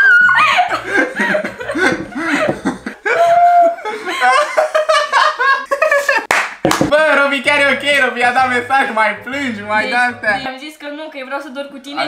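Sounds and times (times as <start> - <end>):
woman laughing: 0.0 - 6.3
man laughing: 0.7 - 6.3.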